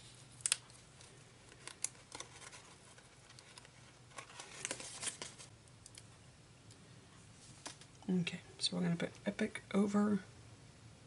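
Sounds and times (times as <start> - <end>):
sticker sheet crinkling: 0.4 - 5.5.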